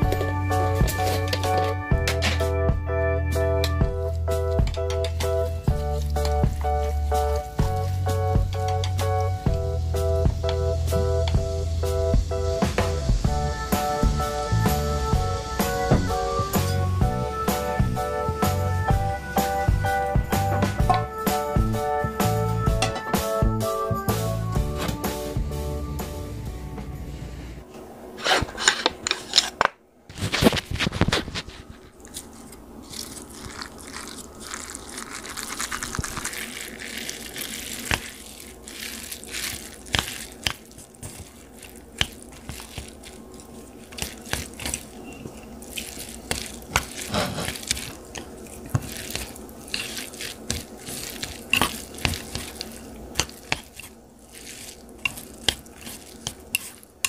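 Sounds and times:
wet sticky noodle squelches: 31.9 - 57.0.

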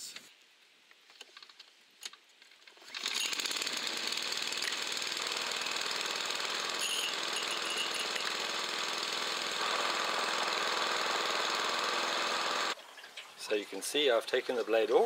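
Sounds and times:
lawnmower engine running: 2.8 - 12.8.

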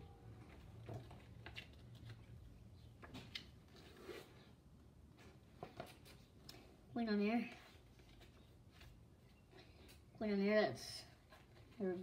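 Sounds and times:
paper booklet rustling and clicking: 0.5 - 4.3.

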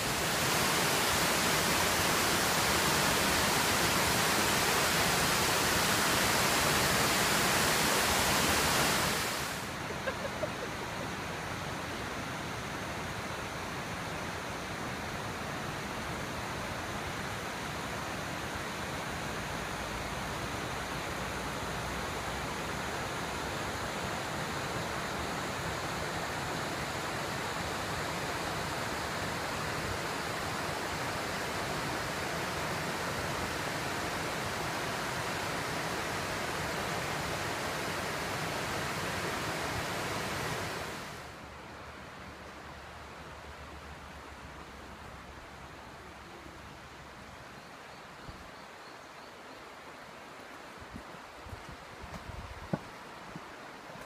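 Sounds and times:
waterfall rushing: 0.0 - 41.4.

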